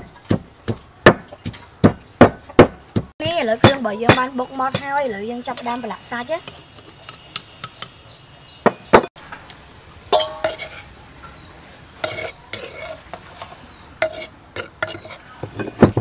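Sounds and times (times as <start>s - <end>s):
metal spoon clinking on steel bowl: 10.1s - 10.9s.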